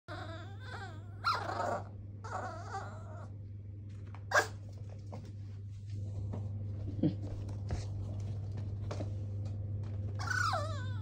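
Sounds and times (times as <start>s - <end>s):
puppy yipping: 0.1s - 3.2s, 10.2s - 11.0s
puppy whining: 0.1s - 3.4s, 10.2s - 11.0s.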